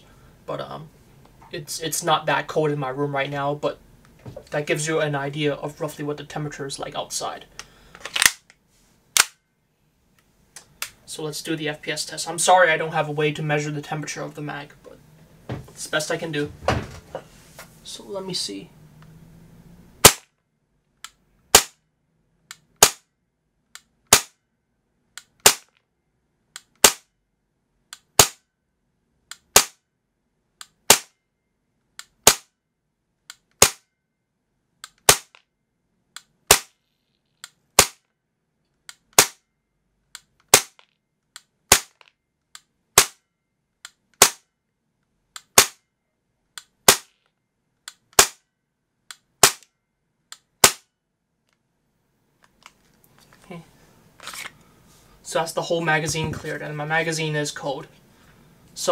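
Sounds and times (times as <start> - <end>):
airsoft pistol shots: 9.2 - 9.4, 20.0 - 20.3, 21.5 - 21.8, 22.8 - 23.0, 24.1 - 24.4, 25.4 - 25.7, 26.8 - 27.1, 28.2 - 28.4, 29.5 - 29.8, 30.9 - 31.1, 32.2 - 32.5, 33.6 - 33.8, 35.0 - 35.4, 36.5 - 36.7, 37.8 - 38.0, 39.2 - 39.4, 40.5 - 40.8, 41.7 - 42.0, 43.0 - 43.2, 44.2 - 44.4, 45.5 - 45.8, 46.8 - 47.1, 48.2 - 48.4, 49.4 - 49.6, 50.6 - 50.9.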